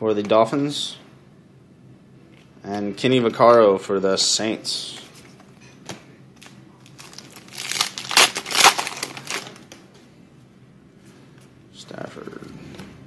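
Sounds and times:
plastic wrapper crinkling: 6.4s - 9.8s.

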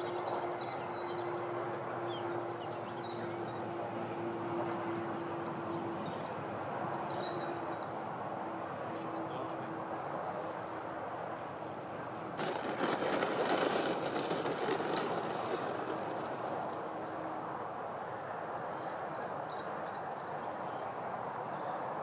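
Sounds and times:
landing gear rattling over dirt: 12.4s - 17.4s.

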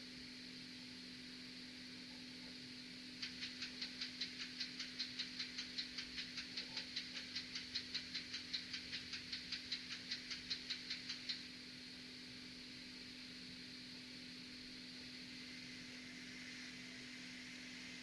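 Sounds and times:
rapid mechanical ticking: 3.2s - 11.5s.

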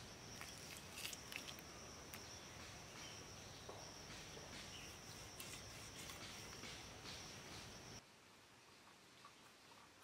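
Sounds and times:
high-pitched insect drone: 0.0s - 8.0s.

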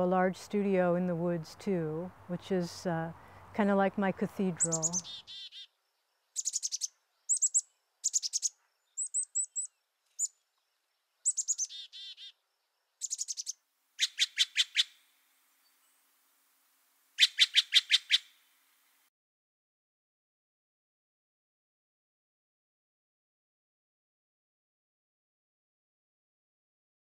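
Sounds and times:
songbird trilling: 4.5s - 5.7s, 6.4s - 10.4s, 11.2s - 12.4s, 13.0s - 15.0s, 17.2s - 18.3s.

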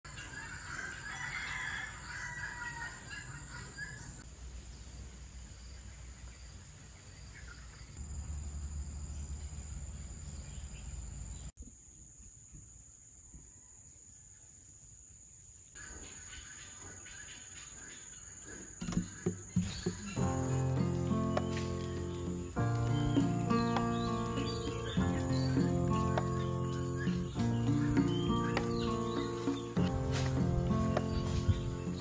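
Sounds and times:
rooster crowing: 0.4s - 3.9s
high insect drone: 17.8s - 32.0s.

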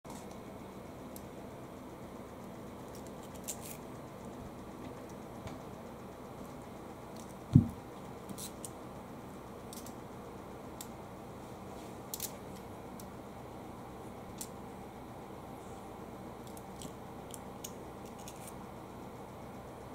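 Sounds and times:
low room hum: 0.0s - 19.9s
loud low thump: 7.5s - 7.8s.

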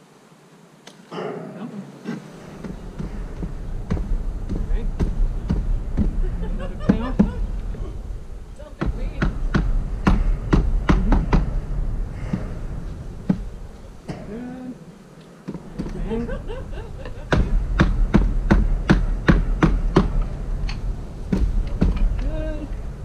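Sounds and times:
low rumble: 1.9s - 23.0s
wooden box knocking against hive: 6.8s - 7.4s, 8.6s - 11.6s.

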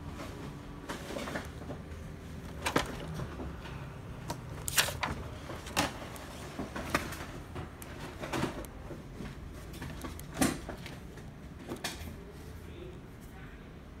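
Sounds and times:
printer mechanism clicks and clunks: 0.8s - 8.8s.

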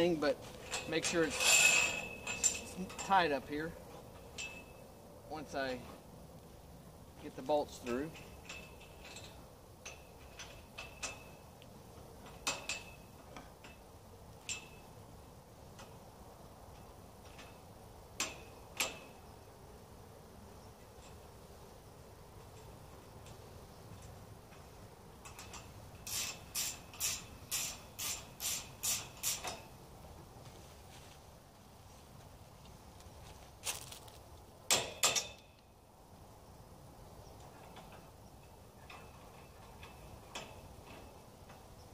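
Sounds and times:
wrench clicking on metal: 25.2s - 29.6s.

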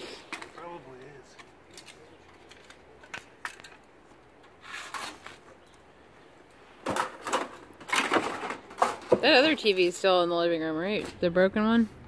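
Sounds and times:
plastic parts clicking and rustling: 1.3s - 3.8s
plastic parts clattering: 6.8s - 9.2s.

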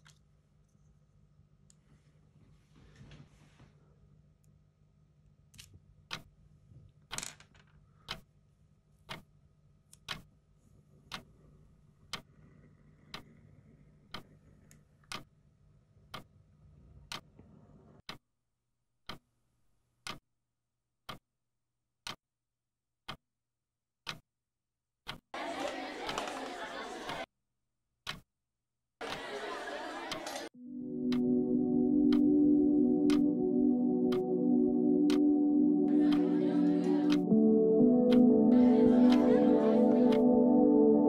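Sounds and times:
clock ticking: 6.1s - 6.3s, 8.1s - 8.3s, 9.0s - 9.3s, 10.0s - 10.3s, 11.1s - 11.3s, 12.1s - 12.3s, 13.0s - 13.3s, 14.1s - 14.3s, 15.0s - 15.3s, 17.1s - 17.3s, 19.1s - 19.3s, 20.0s - 20.2s, 24.0s - 24.2s, 25.1s - 25.3s, 30.9s - 40.4s.

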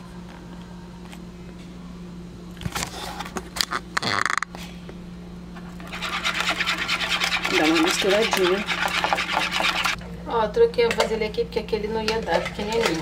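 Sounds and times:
whisk beating eggs in a bowl: 5.8s - 10.0s.

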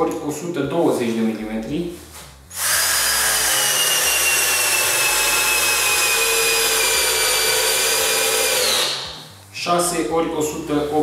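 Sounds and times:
cordless drill whining: 2.5s - 9.2s.

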